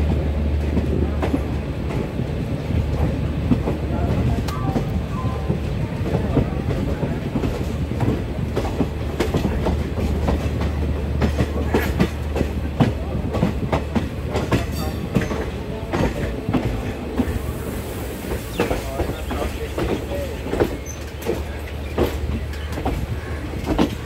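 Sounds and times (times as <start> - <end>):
train wheels clattering over rail joints: 0.0 - 24.0.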